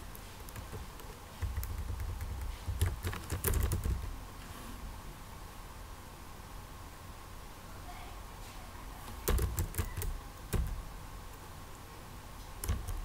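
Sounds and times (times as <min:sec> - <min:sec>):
typing on computer keyboard: 0:00.5 - 0:04.2, 0:09.1 - 0:10.9, 0:12.6 - 0:13.0.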